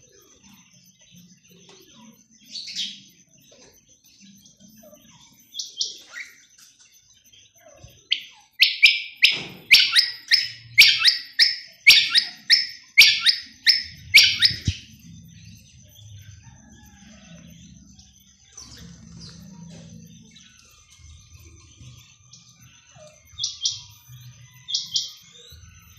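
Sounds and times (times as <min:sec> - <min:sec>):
quail calling: 0:08.1 - 0:14.9.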